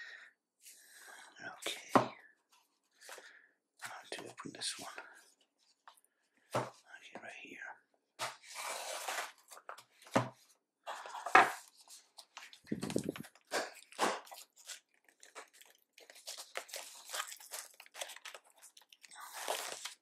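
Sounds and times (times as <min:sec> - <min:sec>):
cardboard box and tape tearing: 0:08.4 - 0:09.6, 0:12.7 - 0:20.0.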